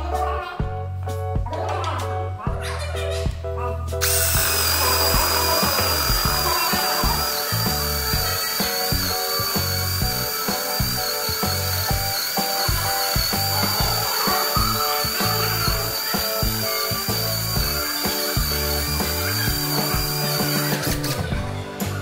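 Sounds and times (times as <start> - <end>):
background music: 0.0 - 22.0
drill motor whining: 4.0 - 21.3.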